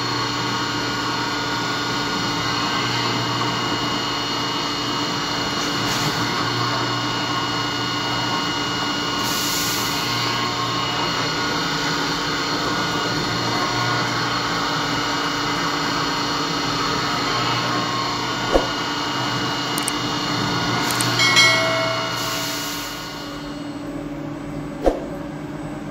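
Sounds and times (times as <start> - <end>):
milling machine running: 0.0 - 23.8
sharp click: 19.8 - 20.0, 20.8 - 21.2.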